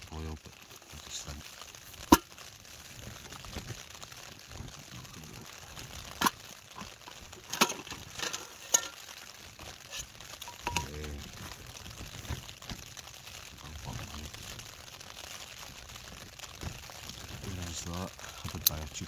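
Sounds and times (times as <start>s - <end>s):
soft rustling: 0.5s - 19.0s.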